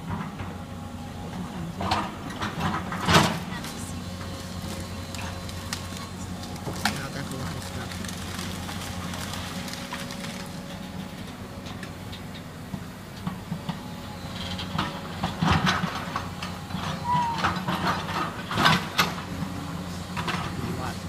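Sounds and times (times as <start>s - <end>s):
excavator diesel engine drone: 0.0s - 21.0s
splintering wood debris cracking: 3.2s - 11.4s.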